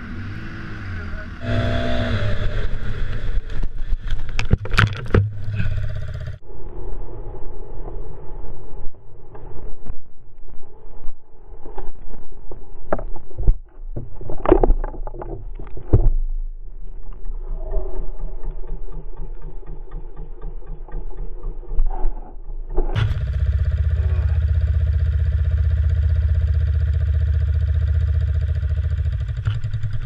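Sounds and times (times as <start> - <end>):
quad engine running: 0.0 - 4.5, 22.9 - 30.0.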